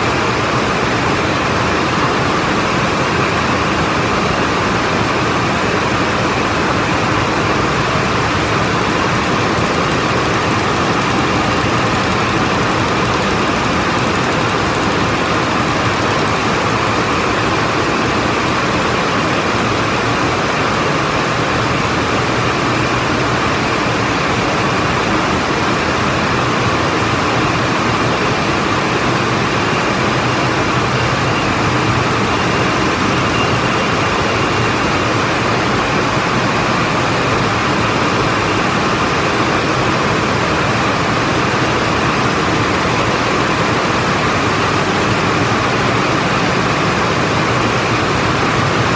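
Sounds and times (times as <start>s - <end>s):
looms weaving mechanical din: 5.0s - 19.2s, 25.9s - 48.9s.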